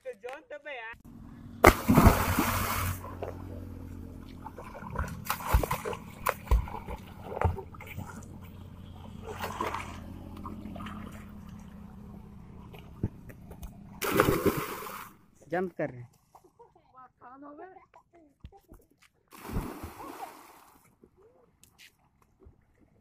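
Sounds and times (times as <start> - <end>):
body splashing into water: 1.6 - 3.4, 4.4 - 8.2, 14.0 - 15.1, 19.3 - 20.8
swimmer splashing water: 1.6 - 15.2.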